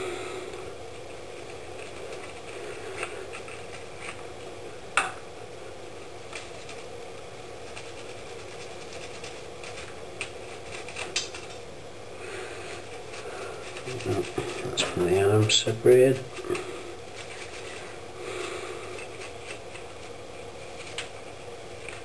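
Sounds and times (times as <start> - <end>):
steady low hum: 0.0 - 22.0
toothbrush bristles scratching: 0.9 - 4.2, 7.6 - 11.6, 12.3 - 22.0.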